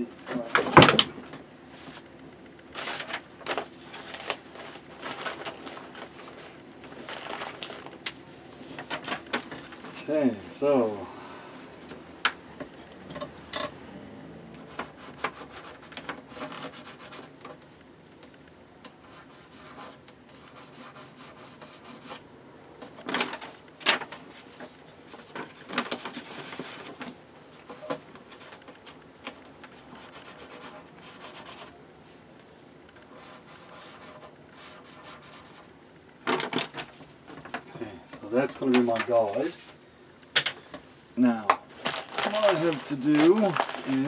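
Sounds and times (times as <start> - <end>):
paper scraping against wood: 14.6 - 17.4, 27.7 - 31.7, 33.0 - 35.7, 41.7 - 44.0.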